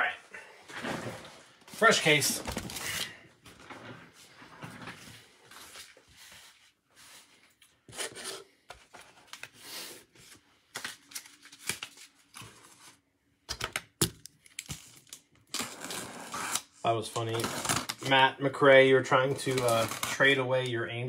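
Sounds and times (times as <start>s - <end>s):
packing tape and cardboard tearing: 14.0s - 18.2s, 19.3s - 20.4s.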